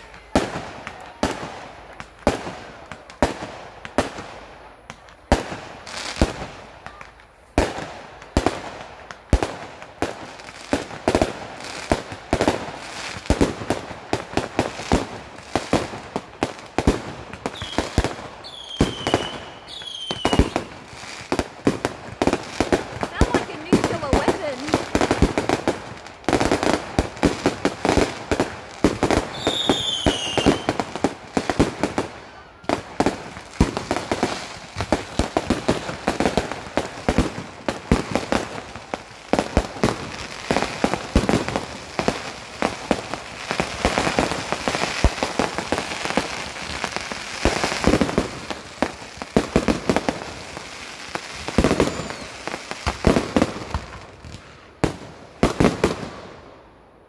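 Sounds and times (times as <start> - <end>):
fireworks bangs and crackling: 0.0 - 57.0
firework whistle: 17.5 - 20.9, 29.2 - 31.0, 51.5 - 53.0.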